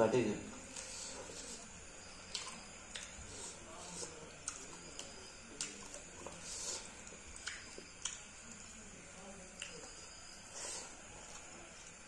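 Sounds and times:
wet chewing and lip smacks: 0:02.2 - 0:03.4, 0:04.0 - 0:08.6.

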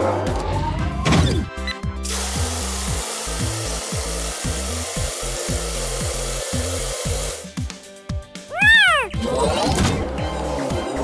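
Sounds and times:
water spraying hiss: 0:02.0 - 0:07.5.

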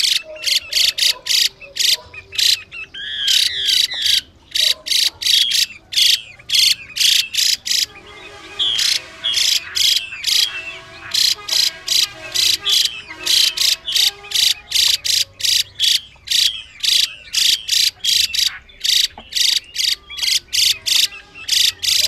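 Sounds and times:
bird giving harsh rasping call: 0:00.0 - 0:22.0.

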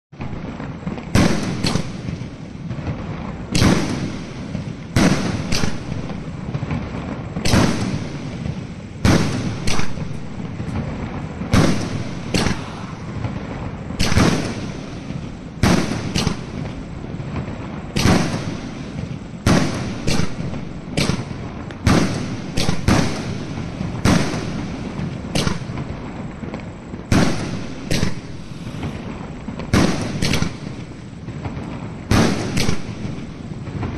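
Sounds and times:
firework bangs: 0:00.1 - 0:33.9
hiss and patter of small bursts: 0:00.2 - 0:33.9.

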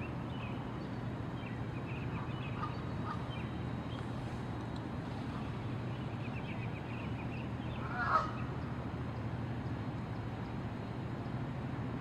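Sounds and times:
low background rumble: 0:00.0 - 0:12.0
goose honk: 0:07.8 - 0:08.4.

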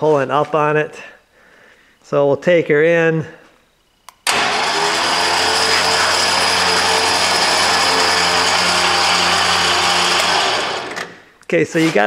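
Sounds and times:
electric winch motor whining: 0:04.3 - 0:11.2.

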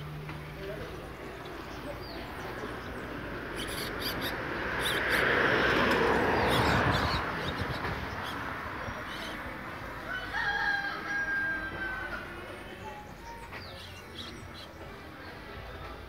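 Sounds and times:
songbirds chirping: 0:00.0 - 0:16.0
rooster crowing: 0:10.0 - 0:12.3.

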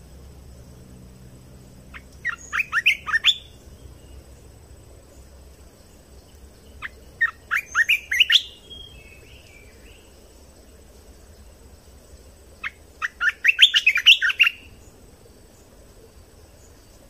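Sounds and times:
bulbul whistled song: 0:01.9 - 0:03.7, 0:06.8 - 0:10.1, 0:12.6 - 0:14.8.

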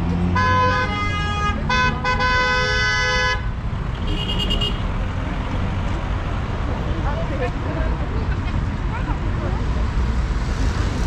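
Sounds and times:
city traffic rumble: 0:00.0 - 0:11.0
car horn honking: 0:00.3 - 0:04.9.

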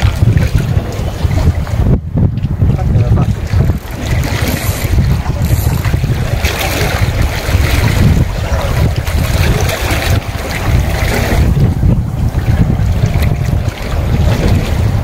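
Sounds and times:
waves washing against rocks: 0:00.0 - 0:15.0
wind buffeting microphone: 0:00.0 - 0:15.0.

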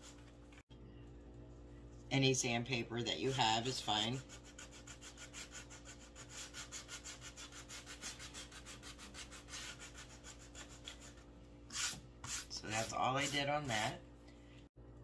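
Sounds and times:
sanding scratching: 0:03.3 - 0:13.9.

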